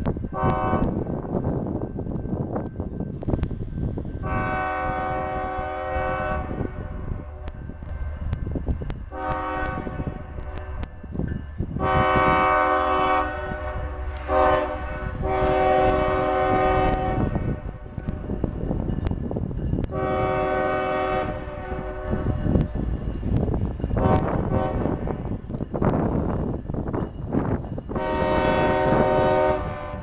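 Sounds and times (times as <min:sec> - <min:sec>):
diesel train rumble on rails: 0:00.0 - 0:30.0
locomotive air horn blasts: 0:00.3 - 0:01.0, 0:04.2 - 0:07.0, 0:09.1 - 0:10.8, 0:11.8 - 0:18.2, 0:19.9 - 0:22.9, 0:24.0 - 0:25.4, 0:27.9 - 0:30.0.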